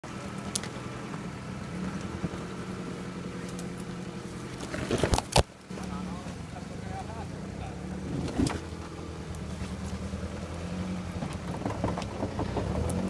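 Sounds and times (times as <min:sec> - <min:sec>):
off-road vehicle engine under load: 0:00.0 - 0:13.0
loud knocks and crackles: 0:11.1 - 0:13.0.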